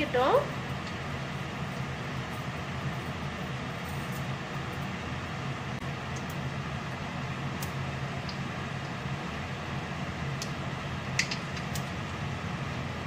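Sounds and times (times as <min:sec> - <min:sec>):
steady low hum: 0:00.0 - 0:13.0
seeds popping in hot oil: 0:07.5 - 0:09.0, 0:10.3 - 0:12.0.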